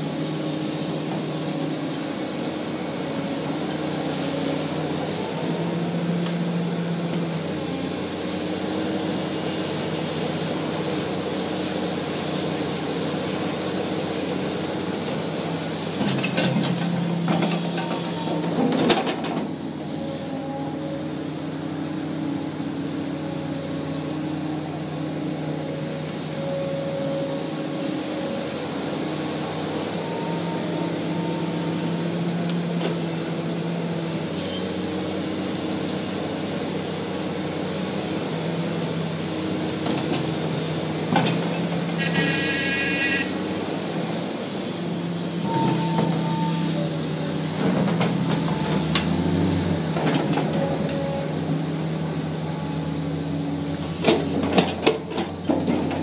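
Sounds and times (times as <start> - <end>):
excavator diesel engine: 0.0 - 56.0
high whine: 42.0 - 43.4.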